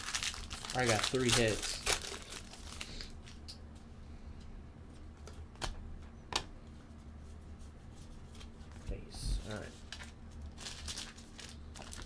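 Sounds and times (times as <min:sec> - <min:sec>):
foil wrapper crinkle: 0:00.0 - 0:03.5, 0:09.9 - 0:12.0.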